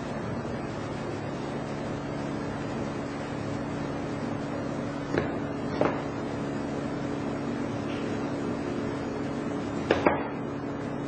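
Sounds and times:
machinery humming: 0.0s - 11.0s.

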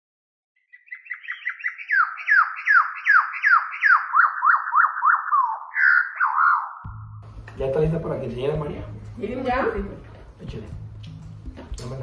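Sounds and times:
whistle-like chirps and swoops: 1.5s - 6.9s.

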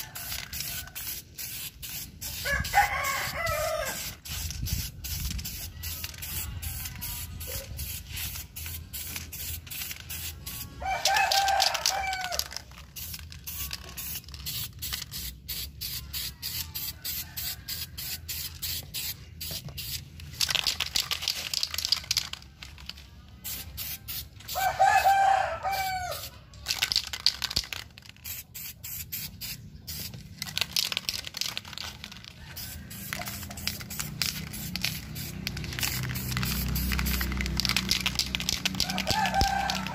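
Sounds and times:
rooster crowing: 0.0s - 1.2s, 2.4s - 4.1s, 10.5s - 12.6s, 24.5s - 26.4s, 32.3s - 35.3s, 38.6s - 39.9s
spray paint can hissing: 0.0s - 39.9s.

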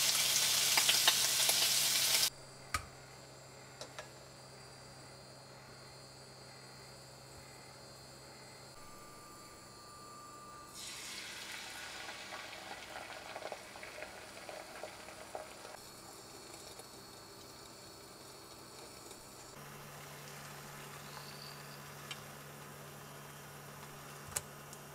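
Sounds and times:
egg sizzling in a frying pan: 0.0s - 2.3s, 10.7s - 24.9s.

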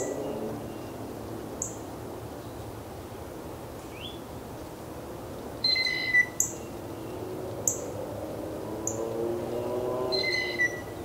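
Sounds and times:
bird whistle: 5.6s - 6.4s, 10.1s - 10.9s.

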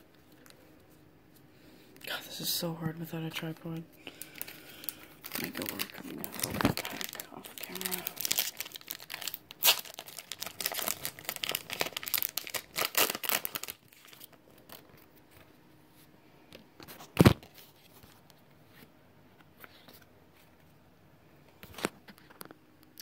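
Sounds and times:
foil wrapper tearing and crinkling: 4.1s - 15.0s.

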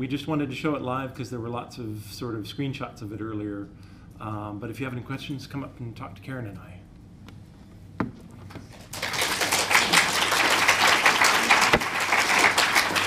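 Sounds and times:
audience applauding: 8.7s - 13.0s.

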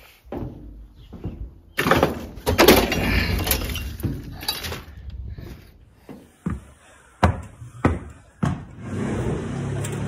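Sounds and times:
debris crashing into a wooden bin: 1.8s - 4.9s.

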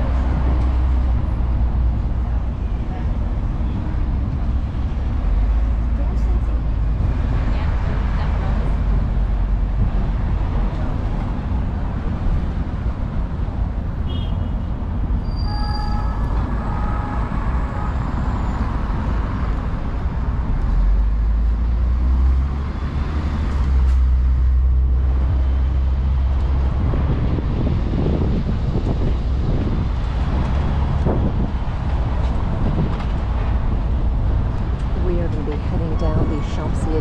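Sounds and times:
bus engine and road rumble: 0.0s - 37.0s
traffic: 0.0s - 37.0s
wind buffeting the microphone: 24.2s - 37.0s.

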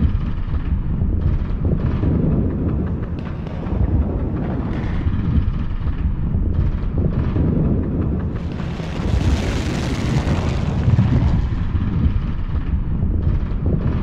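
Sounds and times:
distant explosions rumbling: 0.0s - 14.0s
rushing noise: 8.3s - 12.8s.

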